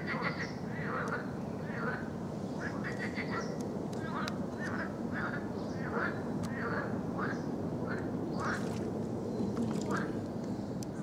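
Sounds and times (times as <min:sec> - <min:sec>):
frogs croaking: 0:00.0 - 0:11.0.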